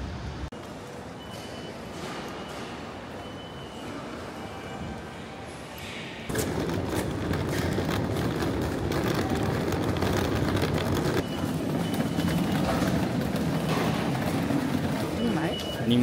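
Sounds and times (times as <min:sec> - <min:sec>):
suitcase wheels rolling on tiles: 0:06.3 - 0:16.0.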